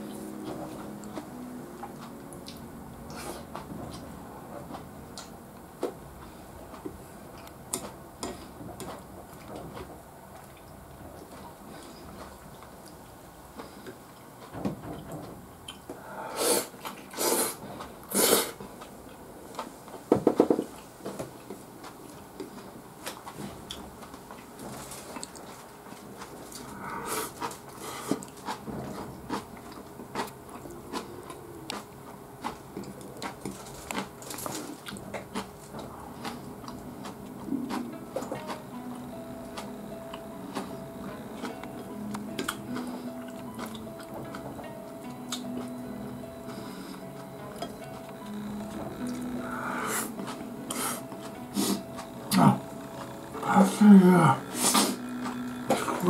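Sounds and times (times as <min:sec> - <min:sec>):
chewing and mouth noises: 0:20.6 - 0:44.6.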